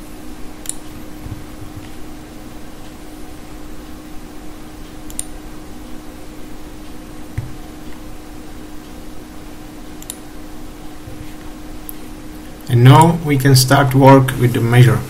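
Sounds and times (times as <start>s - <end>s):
computer fan humming: 0.0s - 15.0s
mouse clicks: 10.0s - 10.2s.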